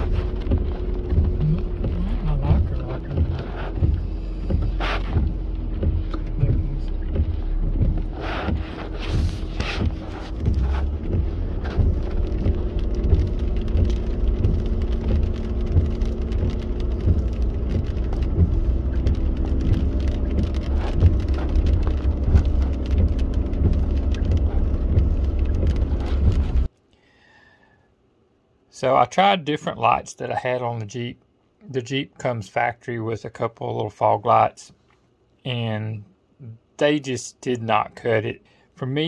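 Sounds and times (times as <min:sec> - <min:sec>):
engine and tyre rumble: 0:00.0 - 0:26.7
rain pattering on car body: 0:00.0 - 0:26.7.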